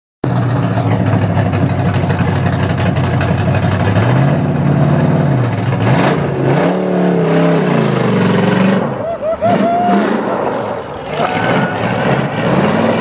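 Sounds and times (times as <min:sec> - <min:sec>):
race car engine idling and revving: 0:00.2 - 0:13.0.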